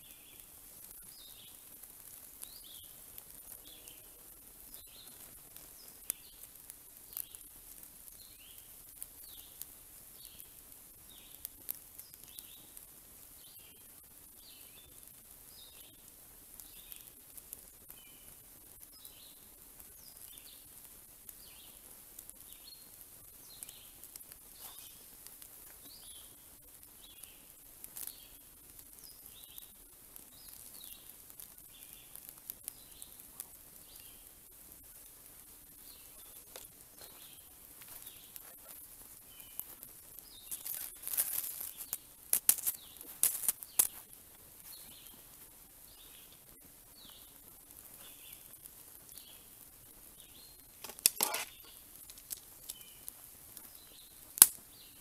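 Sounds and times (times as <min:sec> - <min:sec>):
wood fire crackling: 0:00.0 - 0:55.0
bird chirping: 0:02.4 - 0:06.4, 0:44.6 - 0:45.2, 0:45.9 - 0:47.4, 0:50.2 - 0:51.8, 0:52.6 - 0:55.0.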